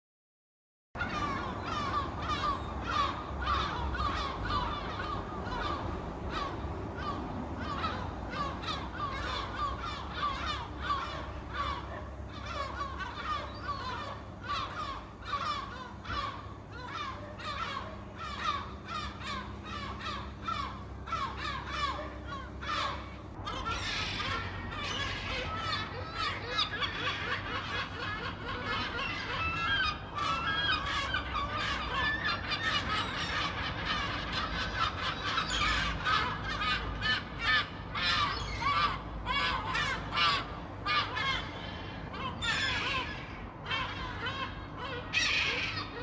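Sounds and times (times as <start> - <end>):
gulls calling: 1.0 - 46.0.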